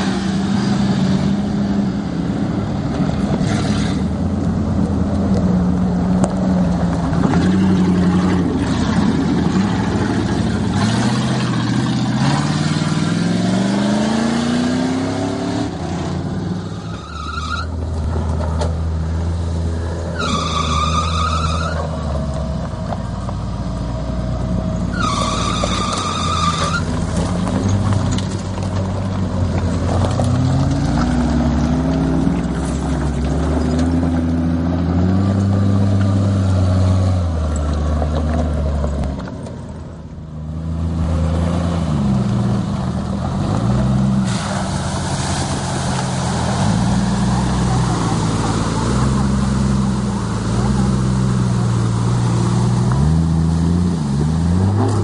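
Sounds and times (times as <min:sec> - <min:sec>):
truck engines revving: 0:00.0 - 0:55.0.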